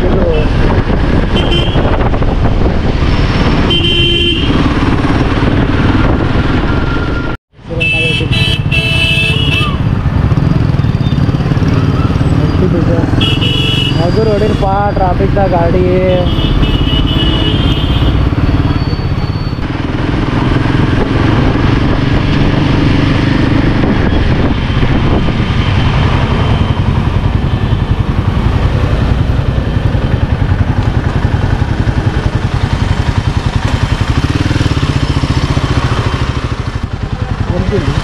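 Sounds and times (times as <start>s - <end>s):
traffic noise rush: 0.0s - 38.0s
motorcycle engine running: 19.6s - 38.0s.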